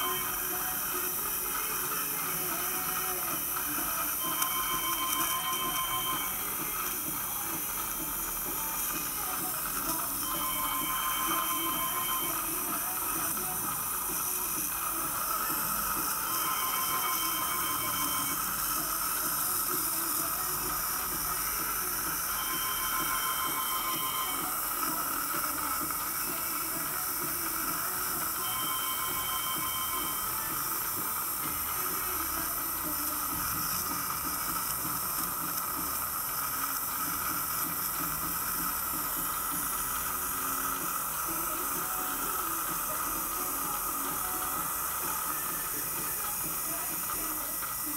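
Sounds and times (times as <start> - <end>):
dental suction hissing: 0.0 - 47.9
short faint beeping tones: 2.5 - 27.0, 27.6 - 32.2.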